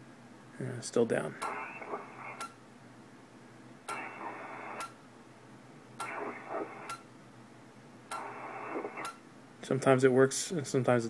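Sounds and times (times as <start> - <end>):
radio receiver hiss: 1.1 - 2.6, 3.8 - 5.0, 6.0 - 7.1, 8.1 - 9.2
radio band switch click: 6.0 - 7.1, 8.1 - 9.2.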